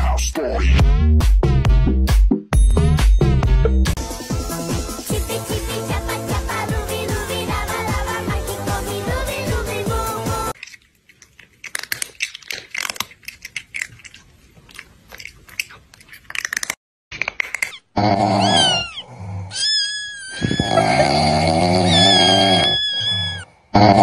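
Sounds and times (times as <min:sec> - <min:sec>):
crunchy chewing bites: 0:10.6 - 0:19.0
mouth clicks: 0:10.6 - 0:19.0
rattling snore with whistling: 0:20.4 - 0:23.5.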